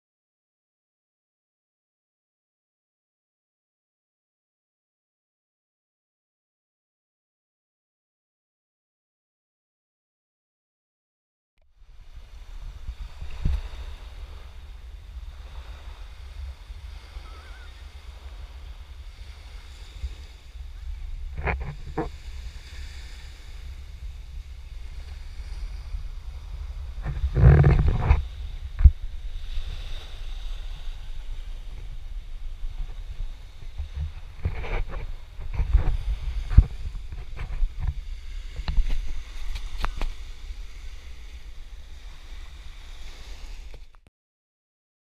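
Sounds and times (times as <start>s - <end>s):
small waves washing onto sand: 11.7s - 44.0s
wind buffeting microphone: 11.8s - 44.0s.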